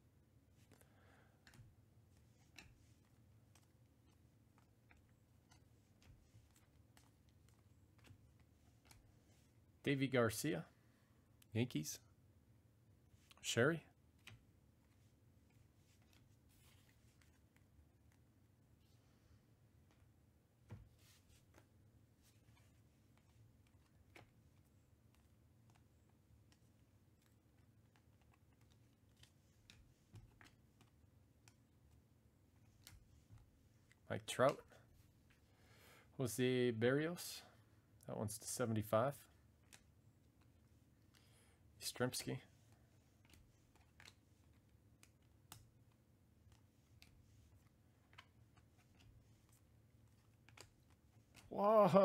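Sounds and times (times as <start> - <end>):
cards clicking as flipped: 22.4 - 31.6, 32.6 - 34.6, 39.6 - 41.3, 43.2 - 51.5.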